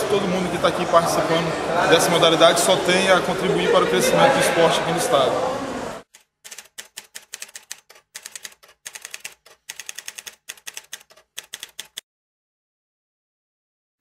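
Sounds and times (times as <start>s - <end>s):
typewriter keys clacking: 6.1s - 12.0s.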